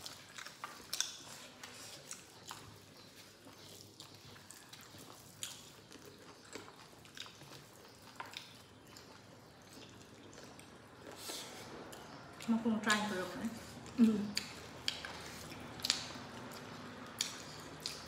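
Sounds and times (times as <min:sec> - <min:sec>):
wet mouth clicks and smacks: 0:00.0 - 0:01.4, 0:14.3 - 0:18.0
faint chewing: 0:00.0 - 0:18.0.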